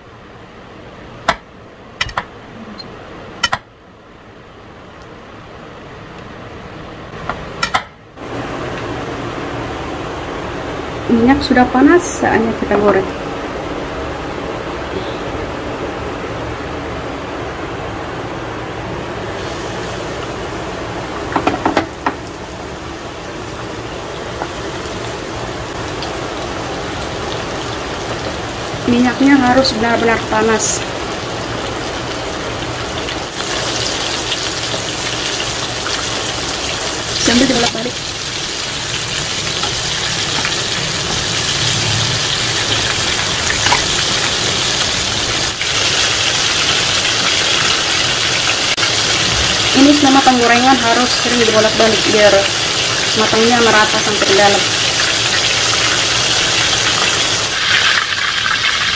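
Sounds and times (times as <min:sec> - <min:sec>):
chicken deep-frying in oil: 0:19.1 - 0:58.9.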